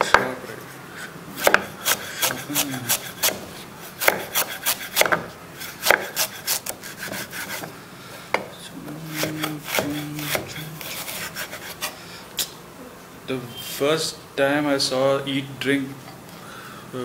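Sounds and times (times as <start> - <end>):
knife chopping on board: 1.4 - 7.7, 9.1 - 11.9
knife scraping board: 1.4 - 7.7, 8.9 - 12.0.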